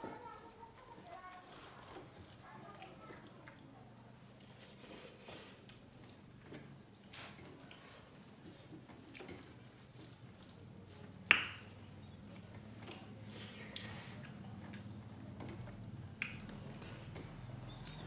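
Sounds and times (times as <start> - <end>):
people chewing: 0.0 - 18.0
rice squishing: 0.0 - 18.0
wet mouth smacks: 16.2 - 16.9.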